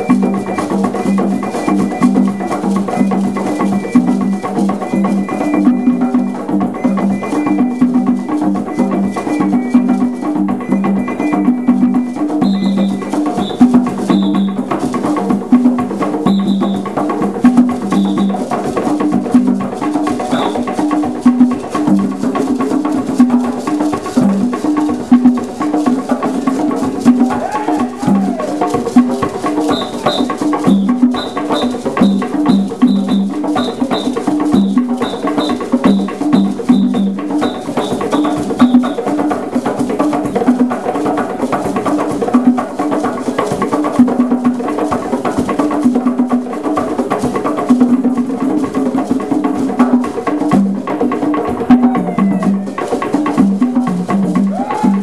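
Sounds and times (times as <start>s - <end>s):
hand drum ensemble: 0.0s - 55.0s
drum struck with sticks: 11.6s - 48.0s, 49.4s - 55.0s
short high pips: 20.2s - 20.8s, 29.6s - 39.0s.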